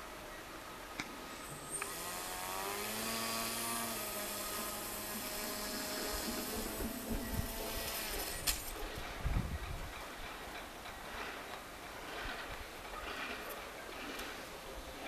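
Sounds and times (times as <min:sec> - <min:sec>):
small electric motor whining: 0:01.4 - 0:08.8.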